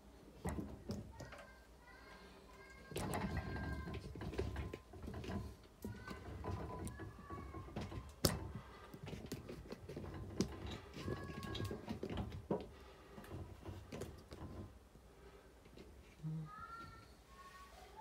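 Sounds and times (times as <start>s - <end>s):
knocks clicks and rustling: 0.4s - 1.6s, 2.8s - 14.8s
faint squeaks: 0.8s - 18.0s.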